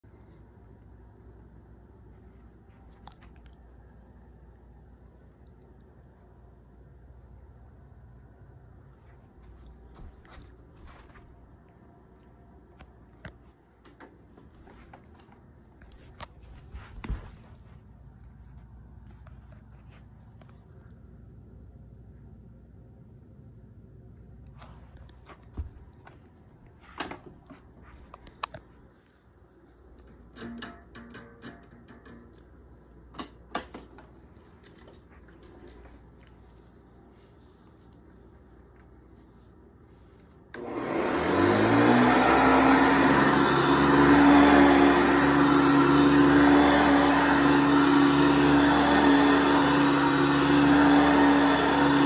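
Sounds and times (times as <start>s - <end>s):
vacuum cleaner running on carpet: 40.6s - 52.0s.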